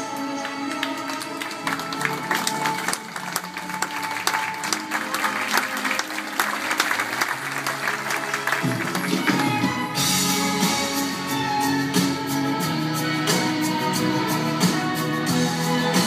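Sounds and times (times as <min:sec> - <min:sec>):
audience applauding: 0:00.0 - 0:11.5
backing music: 0:00.0 - 0:16.0.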